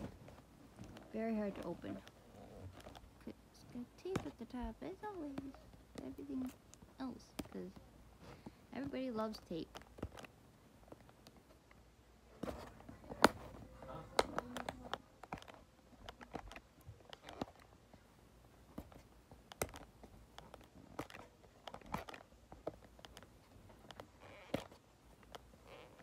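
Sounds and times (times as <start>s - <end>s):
tape snapping: 18.7s - 25.5s.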